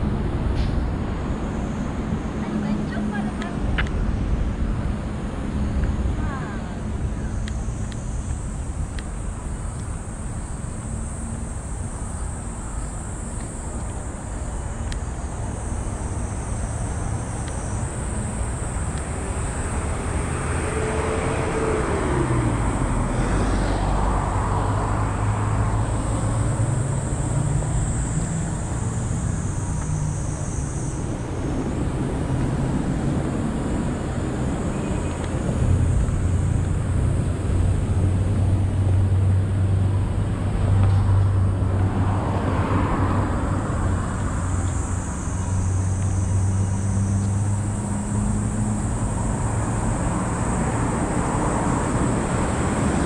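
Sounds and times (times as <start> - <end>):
cicadas buzzing: 0.0 - 53.0
road traffic: 0.0 - 53.0
vehicle passing: 15.2 - 53.0.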